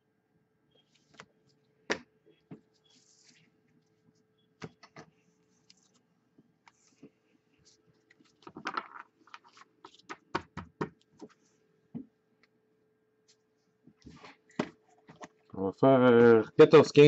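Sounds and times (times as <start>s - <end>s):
cards clicking and tapping on table: 9.9s - 11.3s.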